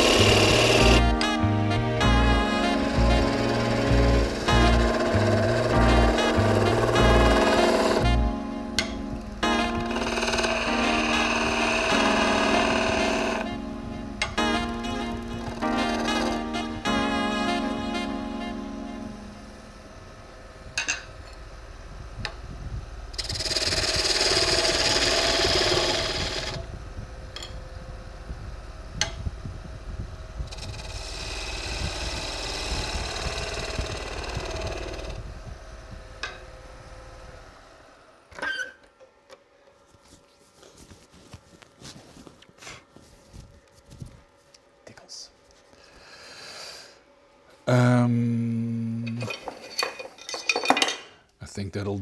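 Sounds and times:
turning tool cutting wood: 0.0 - 1.4, 2.0 - 13.6, 14.2 - 16.6, 23.1 - 26.7, 30.5 - 35.2
wood lathe humming: 0.0 - 29.1, 30.3 - 38.3.

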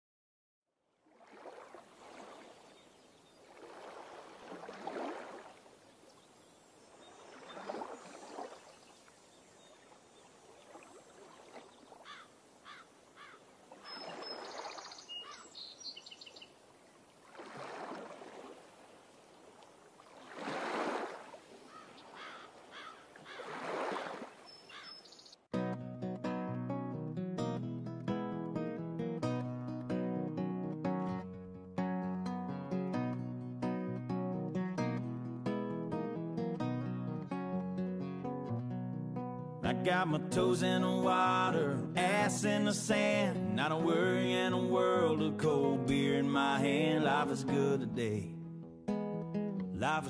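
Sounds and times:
sea waves washing in: 1.0 - 12.0, 17.1 - 24.5.

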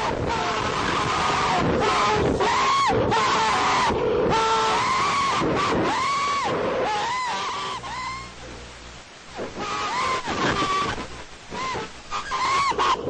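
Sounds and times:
passengers screaming: 0.0 - 8.3.

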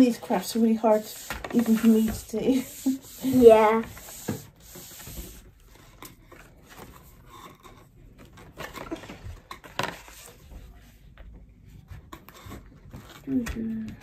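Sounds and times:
card rustling and crinkling: 5.0 - 11.2.

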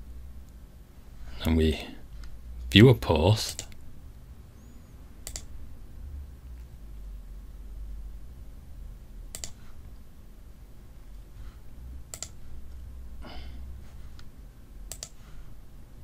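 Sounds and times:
low steady hum: 0.0 - 16.0
computer mouse clicks: 5.2 - 5.5, 9.3 - 9.6, 12.1 - 12.4, 14.9 - 15.2.

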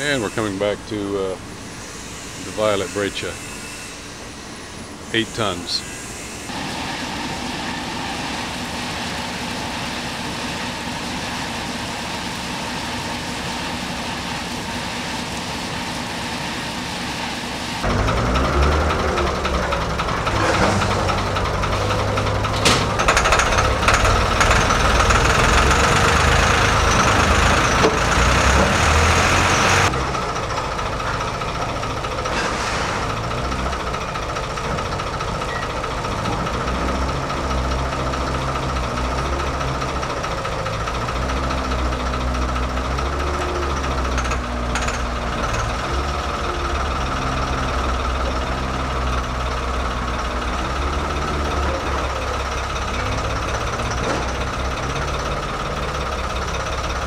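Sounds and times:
forklift engine running: 0.0 - 57.0.

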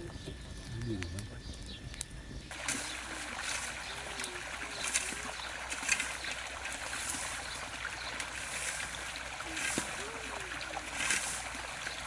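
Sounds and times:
hose water splashing into pool: 2.5 - 12.0.

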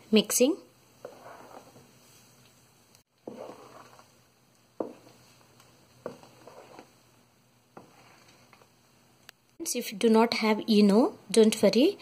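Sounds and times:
batter squelching in a bowl: 1.0 - 2.5, 3.1 - 7.0.

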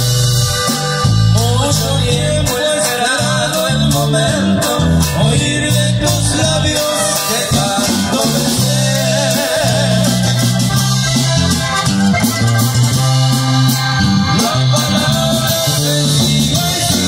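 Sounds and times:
live band playing a song: 0.0 - 17.0
person singing a melody: 1.3 - 10.7, 14.3 - 17.0.

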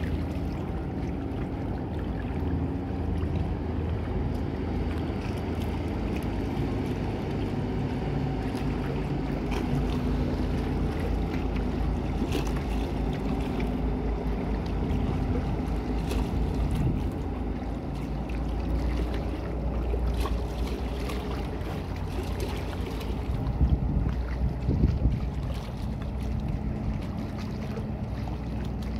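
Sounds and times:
boat engines droning: 0.0 - 28.9
wind on microphone: 15.1 - 17.3, 23.0 - 27.0.

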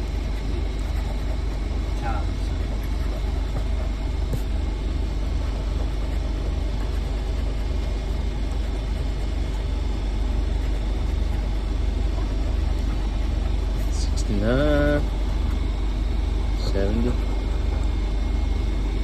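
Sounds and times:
low hum: 0.0 - 19.0
coin scratching lottery ticket: 5.3 - 15.5.

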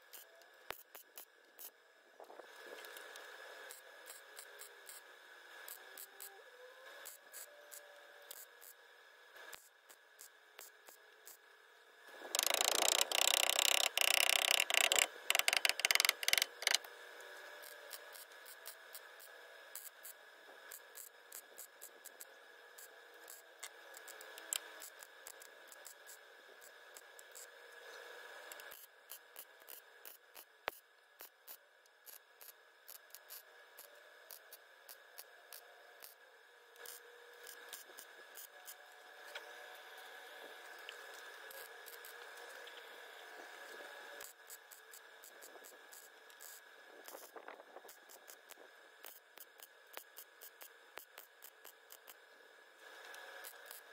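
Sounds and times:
welder crackling: 12.2 - 16.9
faint scattered clicks: 12.4 - 16.8.

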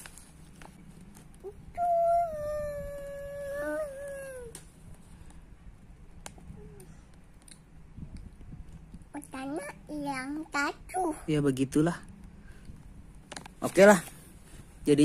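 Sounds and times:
dog howling: 1.9 - 4.5.

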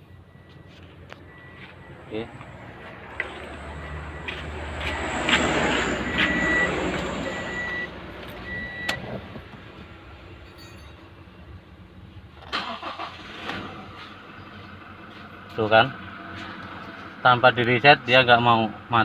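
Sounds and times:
vehicle rumble: 0.0 - 19.0
short high beeps: 6.1 - 9.0.

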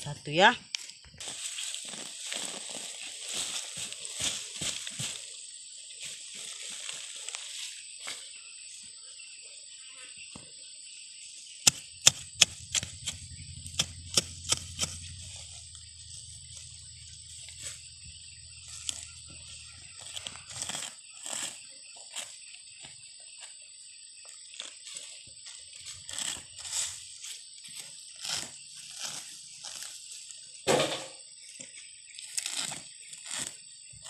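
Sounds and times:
hand hoe chopping into soil: 11.6 - 15.5, 18.8 - 21.6.

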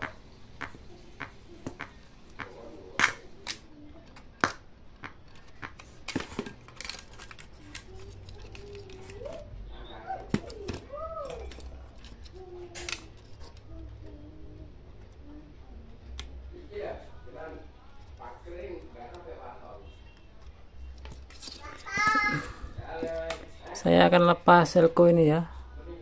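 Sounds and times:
circuit board and cables handled: 3.0 - 9.5, 10.3 - 13.7.

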